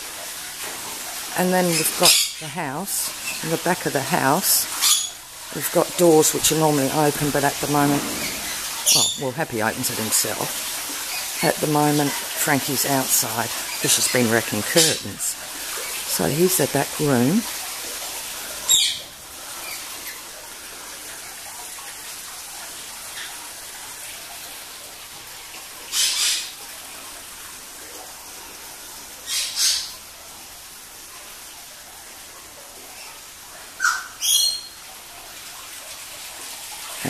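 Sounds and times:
parrots squawking: 1.7 - 2.5, 4.7 - 5.2, 7.7 - 9.2, 18.7 - 19.0, 33.8 - 34.7.

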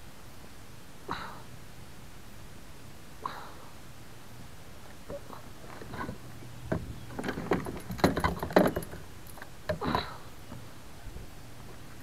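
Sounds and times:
fishing gear clicking and rattling: 5.6 - 10.0.

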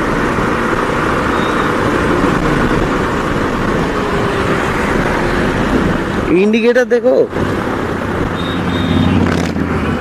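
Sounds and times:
motorcycle engine: 0.0 - 6.4, 7.3 - 10.0
wind rush over microphone: 0.1 - 6.5.

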